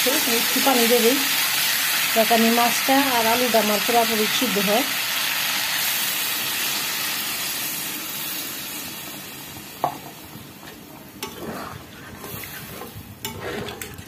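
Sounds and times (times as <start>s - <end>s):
food sizzling in a wok: 0.0s - 10.6s.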